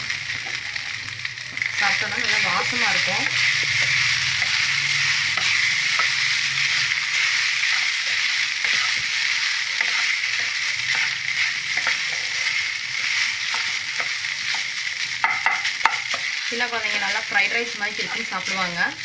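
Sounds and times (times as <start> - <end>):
spatula scraping rice in a pan: 2.8 - 17.3.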